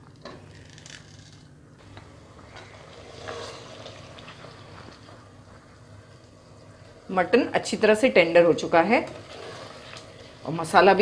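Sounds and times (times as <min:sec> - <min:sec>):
ladle stirring in a pot: 0:02.4 - 0:07.0, 0:08.7 - 0:11.0.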